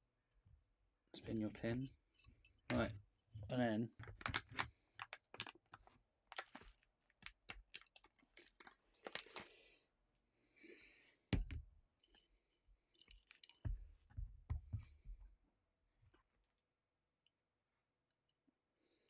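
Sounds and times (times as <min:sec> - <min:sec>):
plastic bag crinkling: 0:06.3 - 0:09.7.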